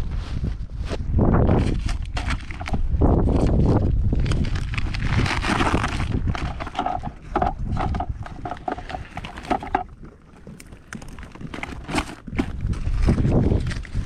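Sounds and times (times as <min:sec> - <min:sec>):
nylon bag rustling: 0:01.5 - 0:14.0
fabric and plastic squeaks: 0:04.6 - 0:14.0.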